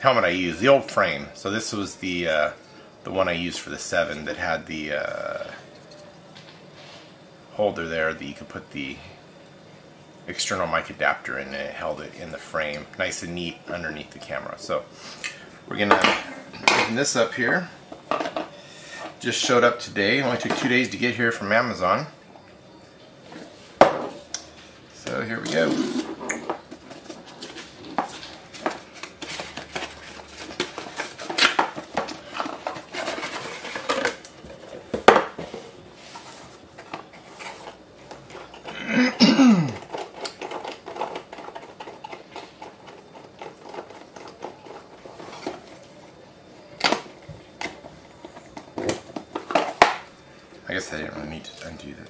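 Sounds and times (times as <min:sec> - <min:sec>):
plastic packaging rustling: 0:25.5 - 0:38.8.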